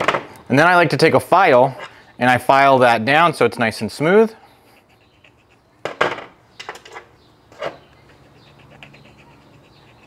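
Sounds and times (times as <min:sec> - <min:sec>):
hand file scraping metal: 0:07.6 - 0:10.0.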